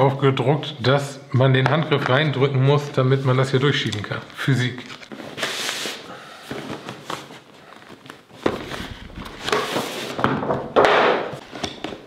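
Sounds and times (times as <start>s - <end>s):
cardboard scraping and rubbing: 8.4s - 10.3s.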